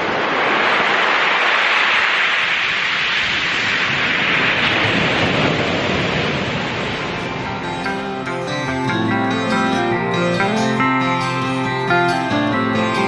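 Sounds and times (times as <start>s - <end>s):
surf washing over pebbles: 0.0s - 7.8s.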